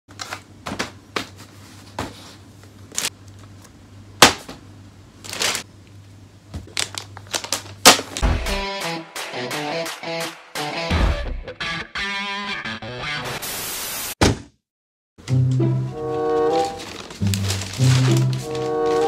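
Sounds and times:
music: 8.2s - 13.7s, 15.2s - 19.0s
cardboard rustling: 16.2s - 19.0s.

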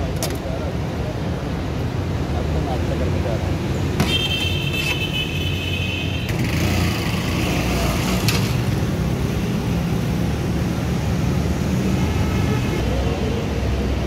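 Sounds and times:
street traffic with low hum: 0.0s - 14.0s.

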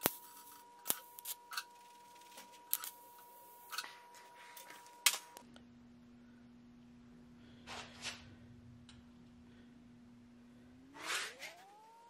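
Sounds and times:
welding ticks and crackles: 0.0s - 3.8s
welding arc whine: 0.0s - 5.4s, 10.6s - 12.0s.

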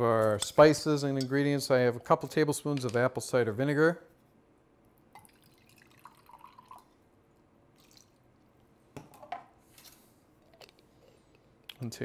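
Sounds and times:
liquid trickling: 5.1s - 7.0s.

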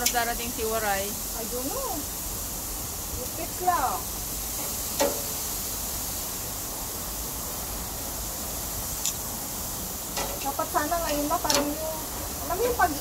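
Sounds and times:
metal tongs clinking on grate: 0.0s - 0.3s, 4.6s - 5.3s, 9.0s - 9.2s, 10.1s - 11.8s
pork sizzling on a grill: 0.0s - 13.0s.

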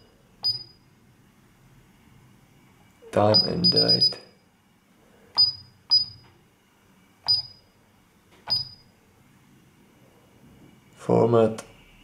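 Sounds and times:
keypad beeps: 0.0s - 0.8s, 3.3s - 4.2s, 5.4s - 6.3s, 7.2s - 7.6s, 8.4s - 8.9s.

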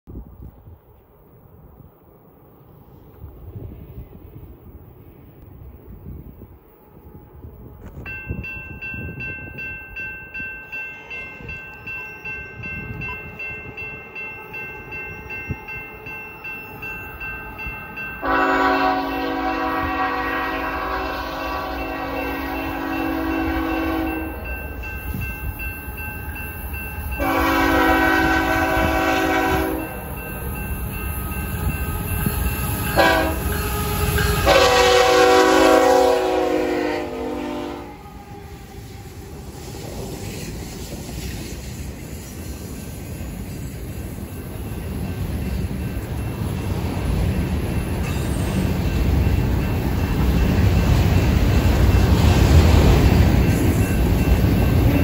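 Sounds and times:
freight train running: 0.1s - 55.0s
locomotive air horn: 18.2s - 24.4s, 27.2s - 30.0s, 31.6s - 38.8s.

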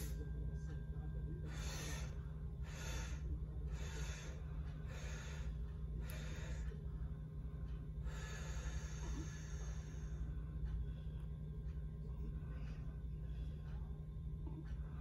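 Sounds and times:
low room hum: 0.0s - 15.0s
person breathing: 1.4s - 7.2s, 8.0s - 11.2s.

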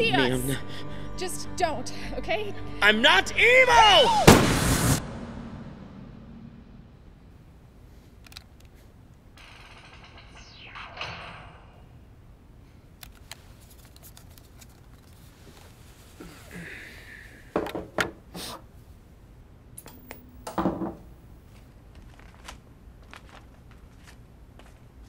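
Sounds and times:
plastic controller clicks and rustles: 8.2s - 8.8s, 13.0s - 15.7s.

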